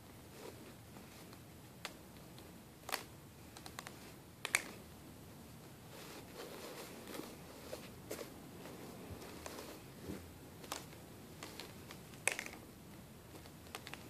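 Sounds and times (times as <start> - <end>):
soft rustling of spinning hoop: 5.6 - 11.9
plastic hoops clicking together: 10.6 - 12.6, 13.4 - 14.0.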